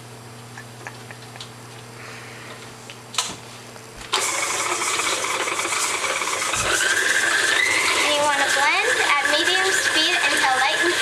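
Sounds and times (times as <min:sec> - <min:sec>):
stand mixer motor running: 0:04.1 - 0:11.0.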